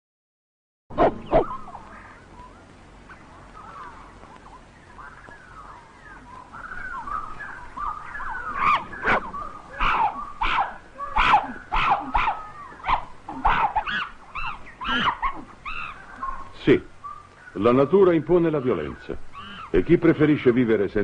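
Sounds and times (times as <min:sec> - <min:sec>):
animal chirping: 0:01.0 - 0:01.9, 0:06.4 - 0:17.6
loud sharp high animal cries: 0:08.6 - 0:16.0.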